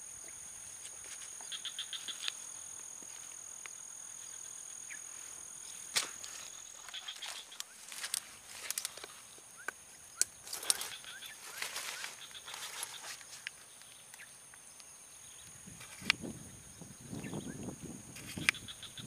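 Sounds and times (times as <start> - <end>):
high-pitched insect drone: 0.0 - 19.0
sharp clicks and chirps: 5.9 - 16.2, 17.5 - 19.0.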